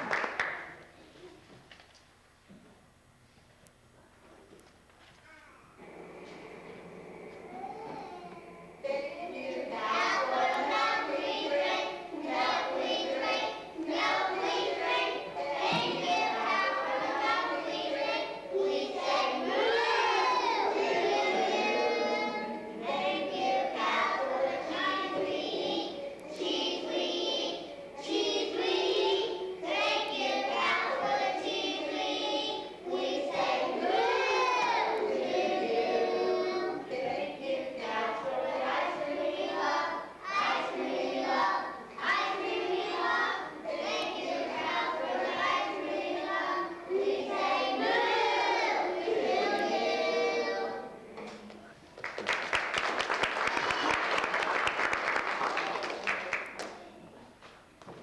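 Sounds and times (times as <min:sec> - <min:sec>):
children singing together: 0:05.7 - 0:51.6.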